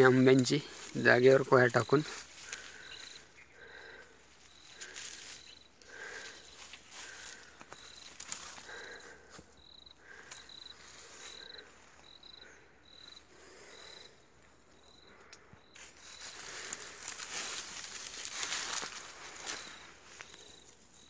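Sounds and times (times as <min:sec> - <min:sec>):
rustling of leafy plants: 0:00.0 - 0:21.0
footsteps: 0:15.8 - 0:20.5.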